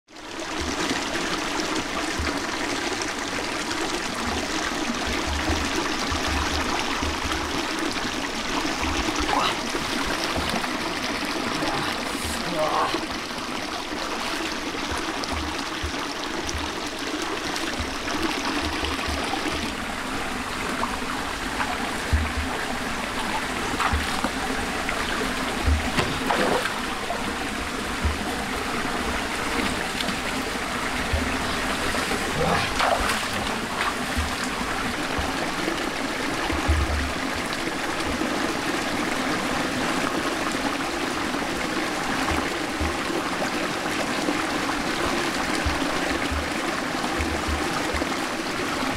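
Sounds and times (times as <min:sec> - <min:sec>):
stream running over rocks: 0:00.1 - 0:48.9
splashes of wading in water: 0:13.9 - 0:37.4.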